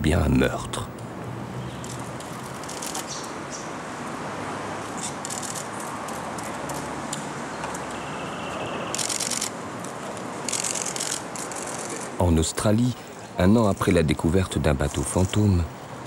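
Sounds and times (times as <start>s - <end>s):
steady background hiss: 7.2s - 16.0s
camera shutters firing: 8.9s - 9.6s, 10.4s - 12.1s.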